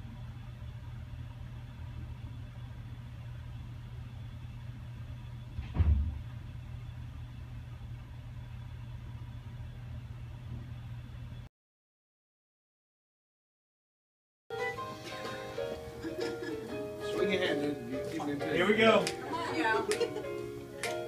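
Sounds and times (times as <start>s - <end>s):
equipment humming: 0.0s - 11.5s, 14.5s - 21.0s
loud thump: 5.6s - 6.3s.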